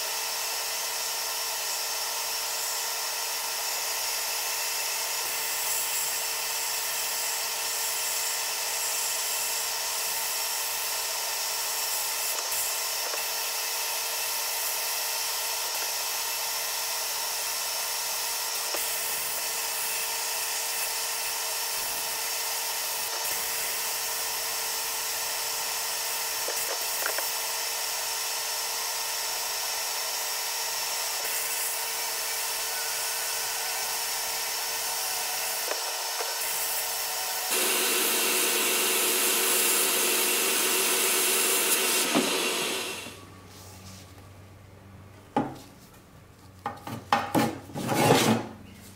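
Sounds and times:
sandblasting gun hissing: 31.2 - 43.2.

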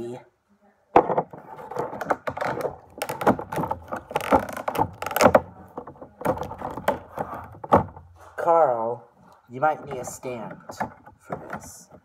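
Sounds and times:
plastic packaging crackling and clicking: 1.6 - 7.9.

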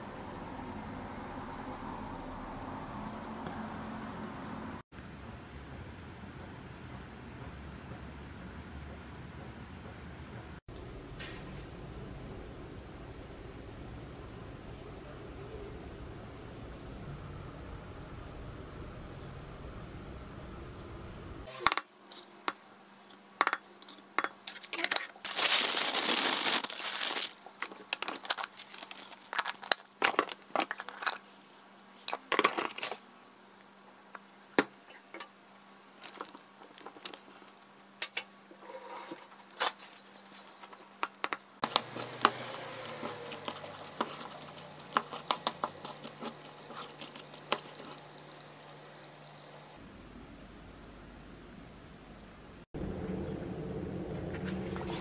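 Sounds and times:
plastic bag crinkling: 24.5 - 31.2, 36.0 - 37.6
cereal pouring: 25.3 - 27.4
wooden spoon mixing in a pan: 40.4 - 49.7.

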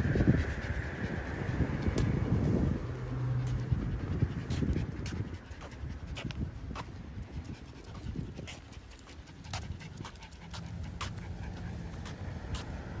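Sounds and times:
dog panting: 0.0 - 13.0
claws clicking on pavement: 3.4 - 13.0.

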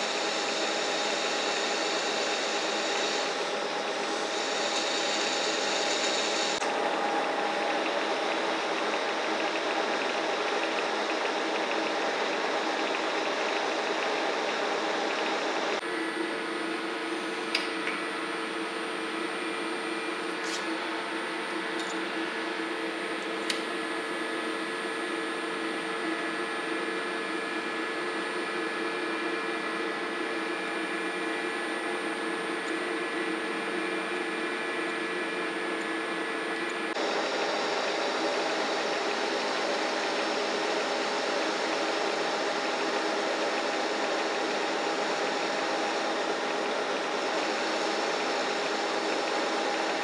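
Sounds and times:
lathe motor humming: 0.0 - 15.8, 36.9 - 50.0.

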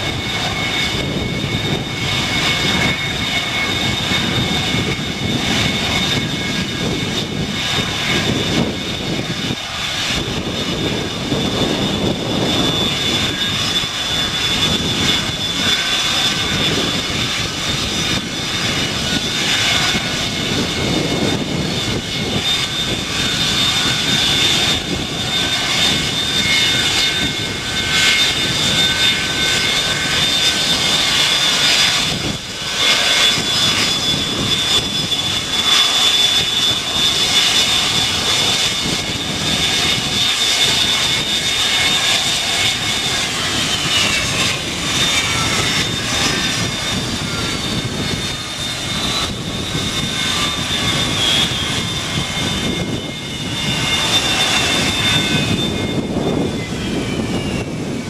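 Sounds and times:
jet engines with high whine: 0.0 - 58.0.

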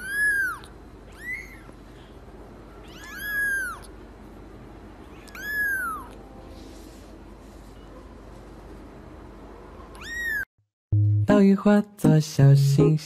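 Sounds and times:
kitten mewing: 0.0 - 1.8, 2.8 - 3.9, 5.1 - 6.2, 9.9 - 10.5.

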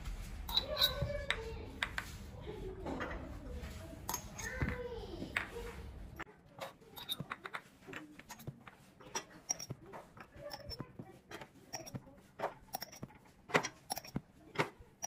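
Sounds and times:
glass jars clinking: 0.5 - 1.0, 6.6 - 14.2.

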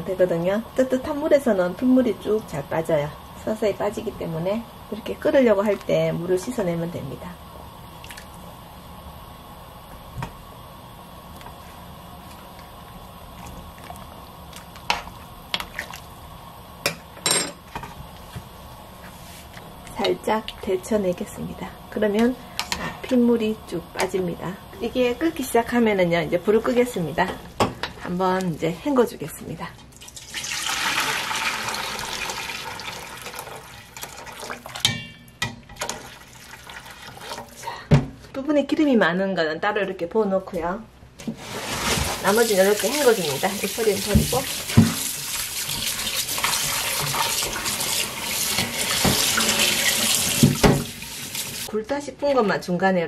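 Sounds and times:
water bubbling in a pot: 11.0 - 16.8, 30.0 - 35.0, 35.8 - 37.6, 42.2 - 51.7
ladle knocking and splashing: 43.9 - 51.2.

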